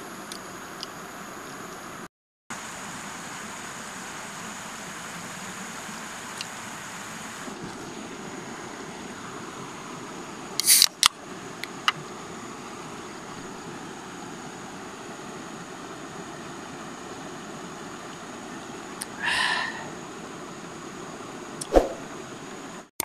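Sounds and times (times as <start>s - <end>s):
stream rushing over rocks: 2.6s - 10.5s
faint ticks: 6.3s - 6.6s
short sharp hiss: 10.6s - 10.9s, 21.6s - 22.1s.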